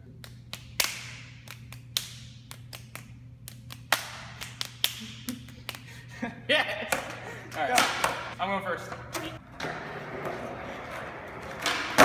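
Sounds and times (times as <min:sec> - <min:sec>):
fists slapping into palms: 0:00.2 - 0:05.9.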